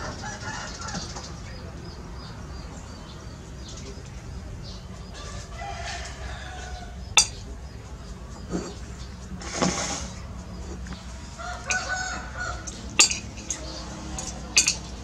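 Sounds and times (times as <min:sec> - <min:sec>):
chickens clucking: 0:00.0 - 0:15.0
metal utensil clinking on dish: 0:07.1 - 0:07.6, 0:10.7 - 0:15.0.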